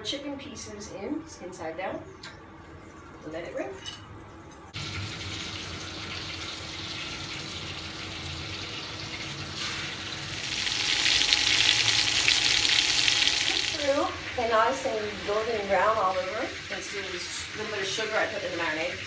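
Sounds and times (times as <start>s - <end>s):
chicken sizzling in a wok: 4.8s - 19.0s.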